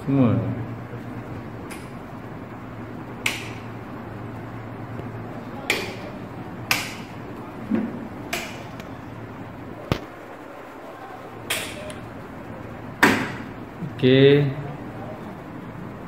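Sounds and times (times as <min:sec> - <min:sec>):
low steady hum: 0:00.0 - 0:16.0
light switches clicking: 0:03.2 - 0:03.7, 0:06.7 - 0:07.1, 0:08.3 - 0:08.9, 0:11.5 - 0:12.0.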